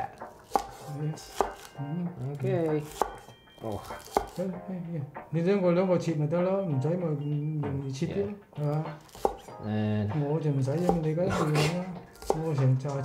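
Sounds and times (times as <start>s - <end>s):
knife chopping on wooden board: 0.0s - 4.4s, 9.0s - 9.6s, 10.7s - 13.0s.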